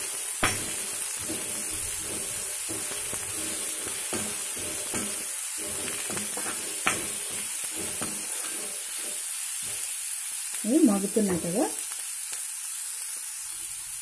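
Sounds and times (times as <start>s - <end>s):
spatula scraping a pan: 0.0s - 10.0s
onions sizzling in oil: 0.0s - 14.0s.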